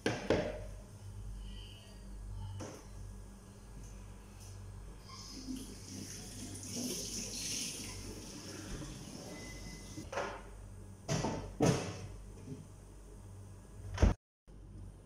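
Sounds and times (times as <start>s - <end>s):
water running from tap: 5.2s - 10.0s.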